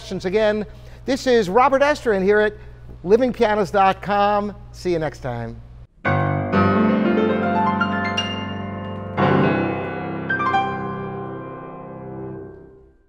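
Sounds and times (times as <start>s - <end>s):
solo piano chords: 6.0s - 13.0s.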